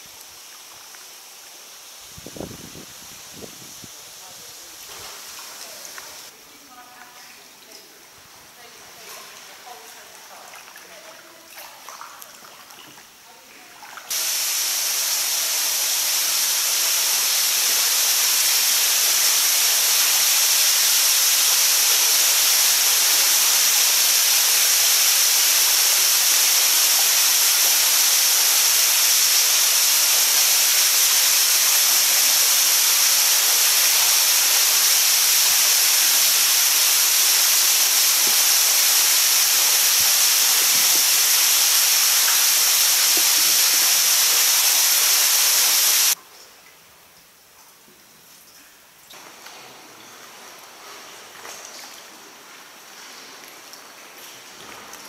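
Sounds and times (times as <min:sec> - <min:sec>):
waterfall rushing hiss: 0:00.0 - 0:06.4, 0:14.1 - 0:46.2.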